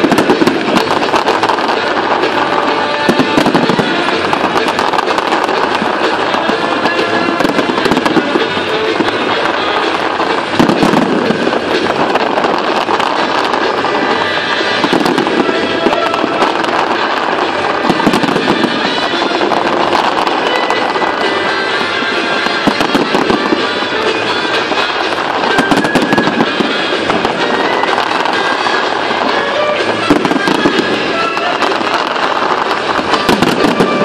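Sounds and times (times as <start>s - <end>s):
fireworks crackling and popping: 0.0s - 34.0s
music playing: 0.0s - 34.0s.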